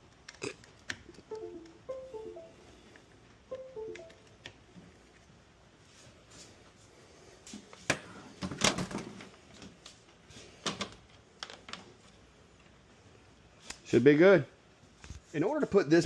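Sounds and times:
falling electronic beeps: 0:01.3 - 0:02.6, 0:03.5 - 0:04.2.

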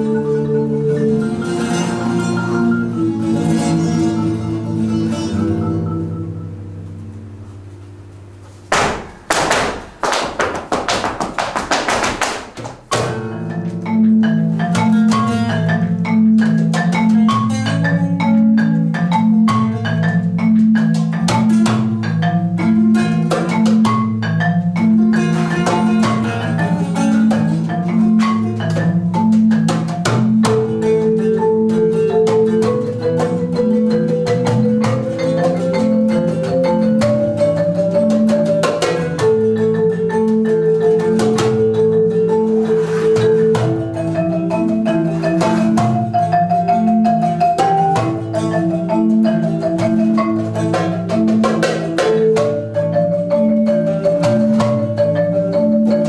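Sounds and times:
acoustic guitar: 0:00.0 - 0:10.0
marimba pattern: 0:00.0 - 0:56.0
percussive strikes: 0:00.0 - 0:56.0
sharp taps: 0:08.7 - 0:13.2.

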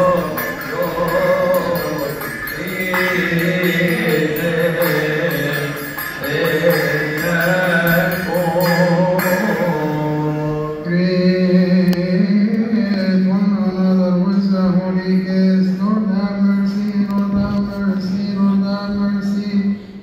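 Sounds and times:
hand cymbals beating: 0:00.0 - 0:10.9
men chanting a hymn: 0:00.0 - 0:14.8.

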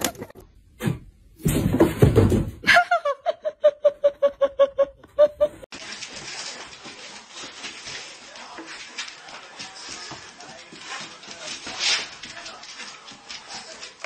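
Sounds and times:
person laughing: 0:02.7 - 0:05.7
rustling scuffle: 0:05.7 - 0:14.0.

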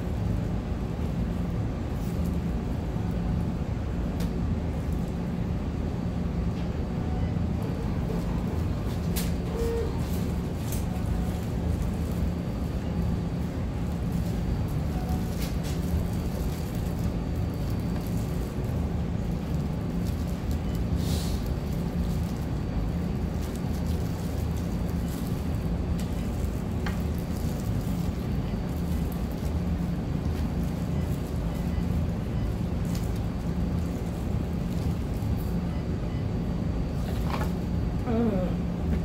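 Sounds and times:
low room rumble: 0:00.0 - 0:39.0
plastic gloves rustling: 0:13.9 - 0:35.3.

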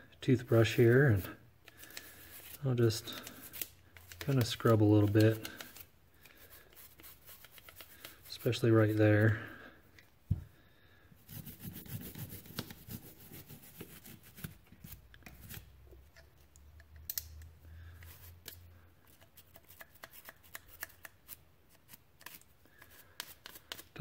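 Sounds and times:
toothbrush scrubbing metal: 0:06.4 - 0:09.1.

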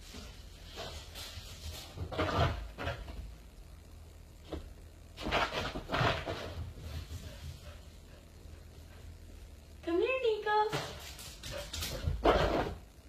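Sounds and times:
dog paws scuffling on floor: 0:00.0 - 0:03.3, 0:10.7 - 0:12.8.

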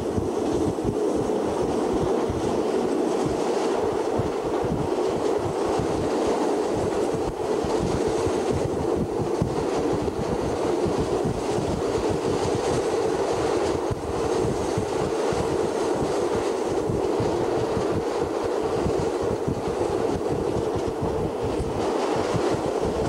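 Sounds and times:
train wheels rumbling on rails: 0:00.0 - 0:23.0.

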